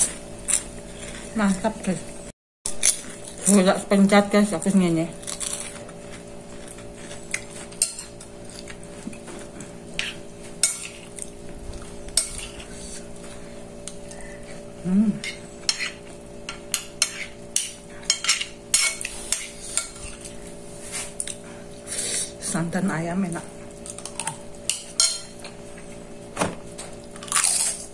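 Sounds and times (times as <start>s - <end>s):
fork scraping ceramic plate: 15.2s - 20.3s.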